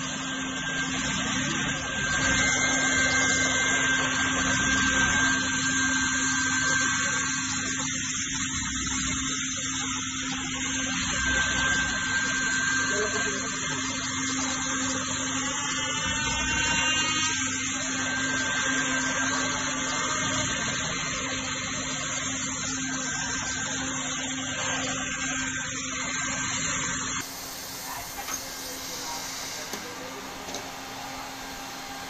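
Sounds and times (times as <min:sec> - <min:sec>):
hot-air welder blower hum: 0:00.0 - 0:32.0.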